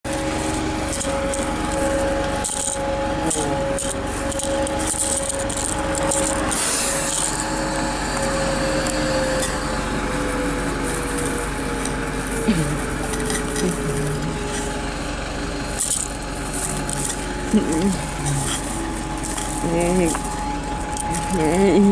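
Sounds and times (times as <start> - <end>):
bus engine whine: 0.0 - 21.9
rubbing and rustling: 0.1 - 9.4, 15.8 - 21.9.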